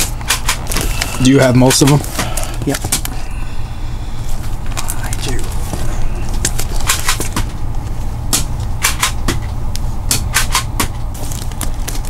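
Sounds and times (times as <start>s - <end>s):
plastic comic bags clicking: 11.2s - 12.0s.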